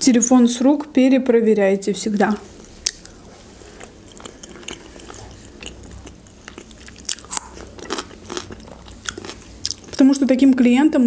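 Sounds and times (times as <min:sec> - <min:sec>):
person chewing with wet clicks: 0:02.2 - 0:10.0.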